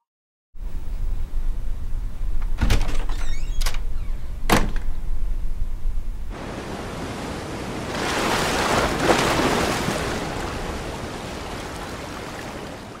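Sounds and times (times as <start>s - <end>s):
sea wave washing over beach: 6.3s - 13.0s.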